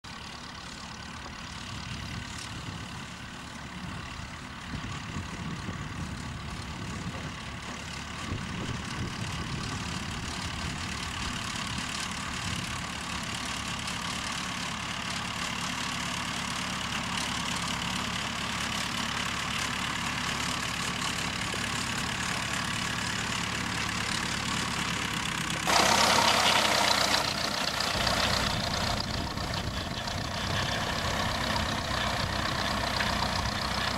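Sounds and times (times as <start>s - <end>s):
tractor diesel engine running: 0.0s - 33.9s.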